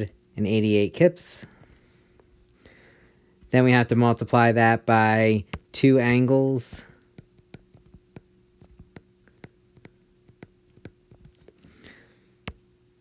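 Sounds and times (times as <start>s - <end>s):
faint steady hum: 0.0s - 13.0s
stylus tapping on glass screen: 6.7s - 11.3s.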